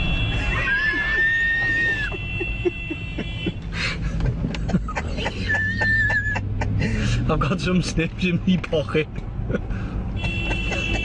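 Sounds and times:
car horn long blast: 0.0 - 0.7, 10.2 - 11.0
engine and road rumble: 0.0 - 11.0.

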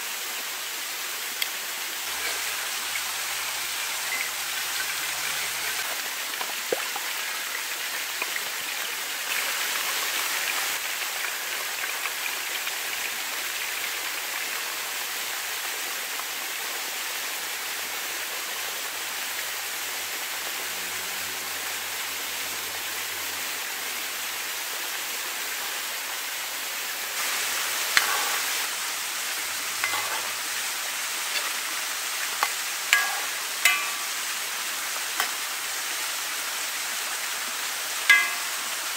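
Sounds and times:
hot oil sizzling in a pan: 0.0 - 38.9
metal skimmer clicking against pan: 32.4 - 34.2, 38.1 - 38.6.

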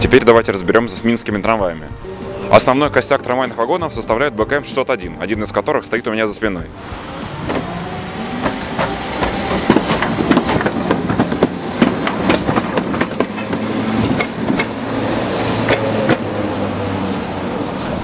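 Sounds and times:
tram wheels clicking over rail joints: 6.8 - 18.0.

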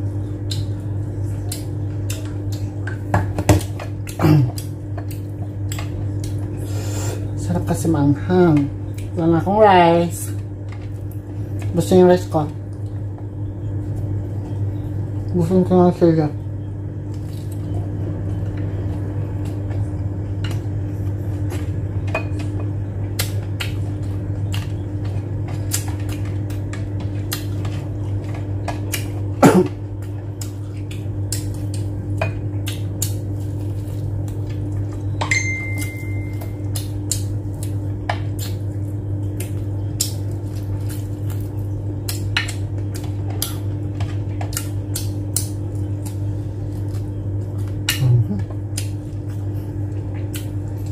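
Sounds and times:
low hum: 0.0 - 50.9
chewing and mouth clicks: 1.4 - 3.0, 22.4 - 29.3, 30.0 - 35.2, 35.8 - 50.9
brief high tone: 35.3 - 36.5.

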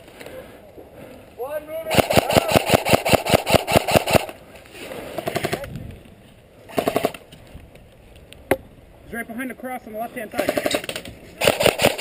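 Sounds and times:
airsoft rifle firing bursts: 1.9 - 4.4, 5.2 - 5.7, 6.7 - 7.2, 11.4 - 12.0.

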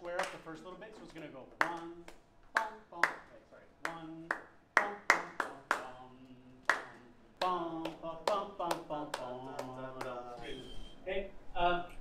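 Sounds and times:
hand claps: 0.1 - 0.5, 1.6 - 6.0, 6.6 - 10.2
man singing syllables: 1.5 - 12.0.

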